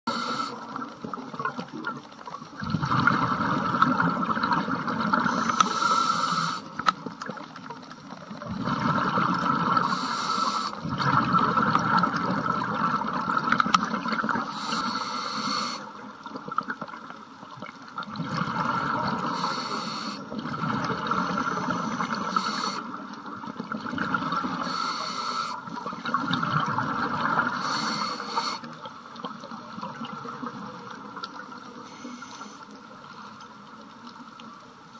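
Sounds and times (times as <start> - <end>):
sharp inhale hiss through regulator: 0.1 - 0.6, 5.2 - 6.8, 9.8 - 10.8, 14.4 - 15.9, 19.2 - 20.3, 21.2 - 22.9, 24.6 - 25.6, 27.5 - 28.7, 31.8 - 33.3
bubbling exhale underwater: 2.6 - 6.6, 8.3 - 10.2, 10.8 - 15.6, 18.0 - 22.9, 25.7 - 28.7.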